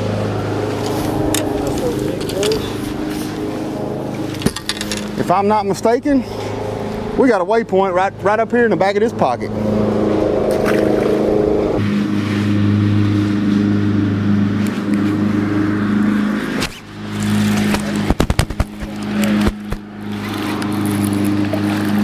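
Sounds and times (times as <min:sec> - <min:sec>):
electric motor humming: 0:00.0 - 0:05.2.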